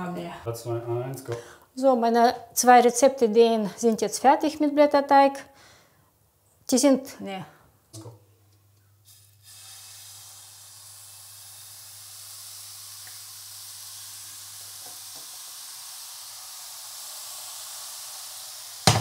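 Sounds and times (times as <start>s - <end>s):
batter sizzling in a frying pan: 9.0s - 19.0s.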